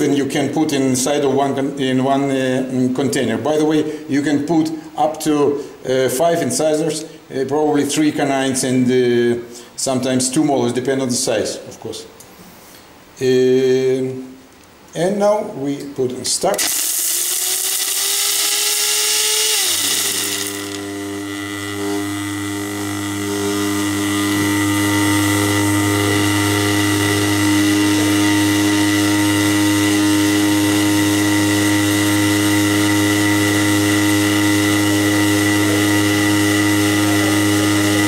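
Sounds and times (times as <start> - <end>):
electric buzzing hum: 0.0 - 38.0
high-speed grinding whine: 16.5 - 38.0.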